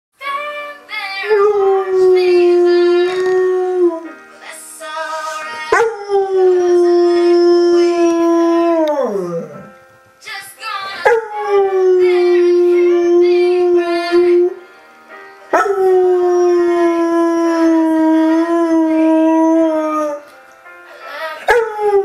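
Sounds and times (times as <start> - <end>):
pop song: 0.2 - 8.5, 10.2 - 14.7, 20.8 - 22.0
dog howling: 5.7 - 9.7, 11.0 - 14.6, 15.6 - 20.3.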